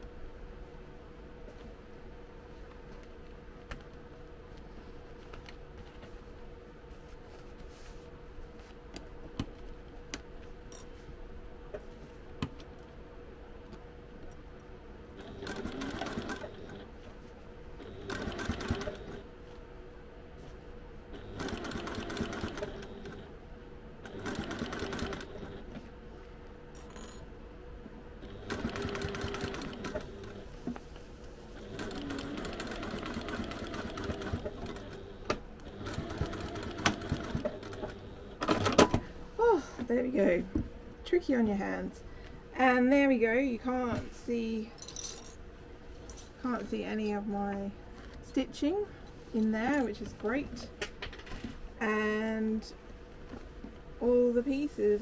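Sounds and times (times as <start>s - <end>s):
low steady hum: 0.0s - 55.0s
sewing machine stitching: 15.2s - 16.9s, 17.8s - 19.2s, 21.2s - 23.2s, 24.0s - 25.7s, 28.2s - 30.5s, 31.6s - 38.8s.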